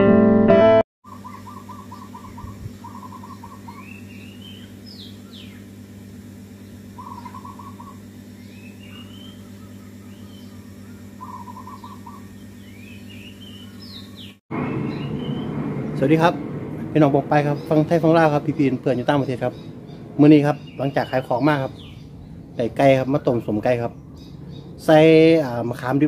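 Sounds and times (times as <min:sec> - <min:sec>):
guitar music: 0:00.0 - 0:00.8
high rising bird chirps: 0:01.0 - 0:05.8, 0:06.5 - 0:16.0, 0:17.3 - 0:25.2
birds trilling: 0:01.0 - 0:16.4, 0:17.0 - 0:26.0
steady low hum: 0:01.1 - 0:26.0.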